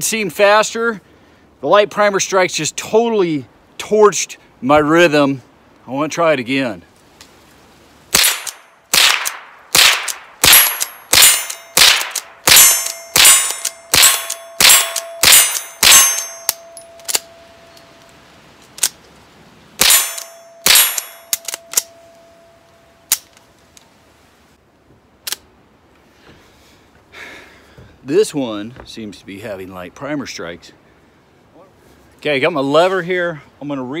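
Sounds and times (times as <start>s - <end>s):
rifle shots: 8.1s - 17.3s, 19.8s - 21.9s
steel targets ringing: 10.4s - 18.0s, 19.8s - 23.1s
rifle action clicks: 20.2s - 22.0s.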